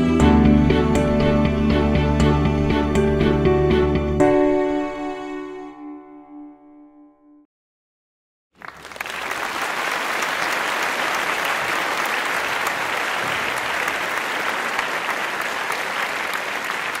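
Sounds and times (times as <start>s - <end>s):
crowd applauding: 8.6s - 17.0s.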